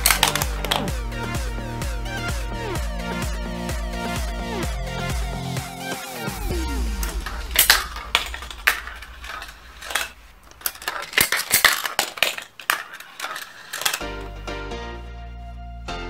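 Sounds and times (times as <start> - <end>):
marbles clacking and rolling: 0.0 - 1.0, 7.0 - 14.3
sharp clicks of balls striking track: 0.0 - 1.0, 6.5 - 14.1.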